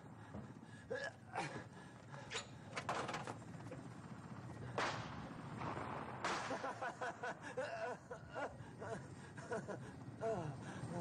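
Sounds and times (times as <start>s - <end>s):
steady background noise: 0.0s - 11.0s
pistol shots: 4.8s - 6.7s.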